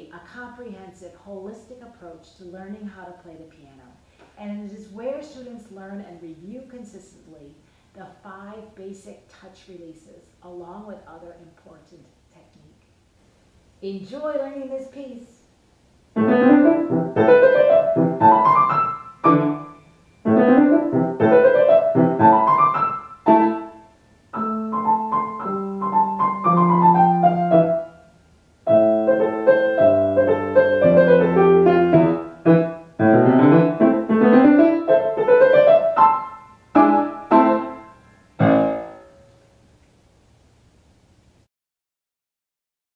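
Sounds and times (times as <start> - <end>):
grand piano piece: 16.2 - 39.4.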